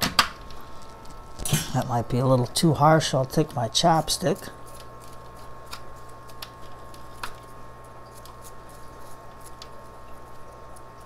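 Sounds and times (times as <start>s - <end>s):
steady low hum: 0.0s - 11.0s
chopstick scratching roots: 3.1s - 10.9s.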